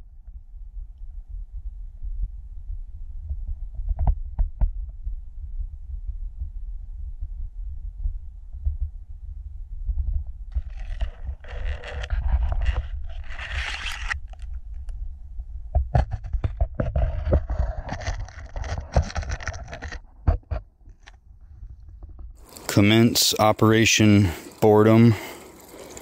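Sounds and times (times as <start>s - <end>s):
gear rustling at microphone: 10.5s - 15.1s, 15.8s - 26.0s.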